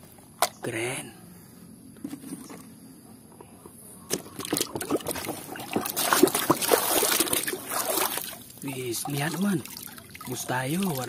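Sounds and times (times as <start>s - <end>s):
hand sloshing through water: 4.4s - 11.0s.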